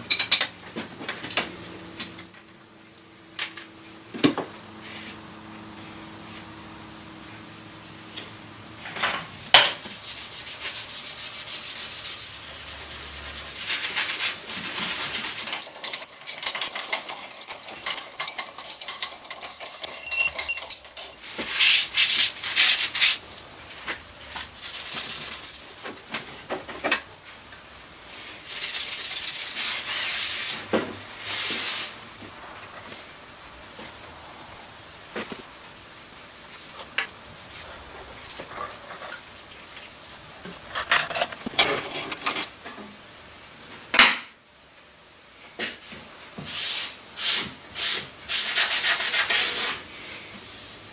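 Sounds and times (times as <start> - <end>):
rubbing and scraping: 9.8 - 23.2, 46.6 - 49.8.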